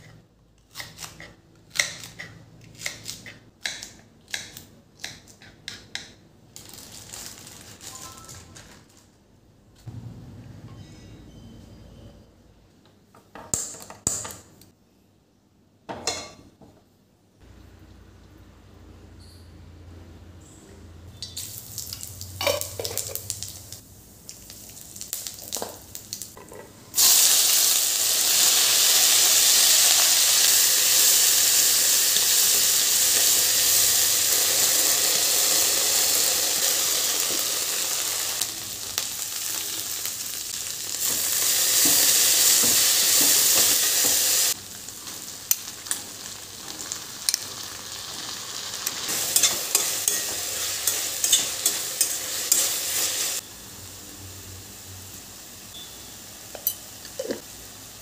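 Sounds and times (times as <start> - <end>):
seeds crackling in hot oil: 21.2 - 26.4, 27.0 - 54.2
vegetables sizzling loudly in oil: 21.4 - 26.4, 27.0 - 58.0.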